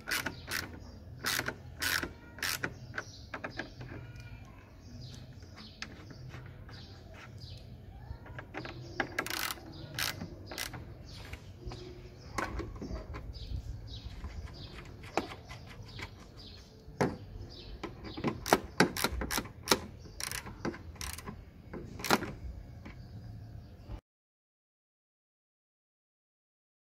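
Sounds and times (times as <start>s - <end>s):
socket ratchet clicking: 0.0s - 4.3s, 8.3s - 10.9s, 17.8s - 21.4s.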